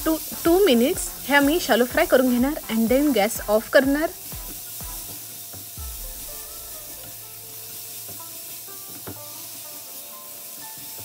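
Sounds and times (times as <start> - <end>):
vegetables sizzling in oil: 0.0 - 11.0
spatula tapping pan: 6.8 - 9.8.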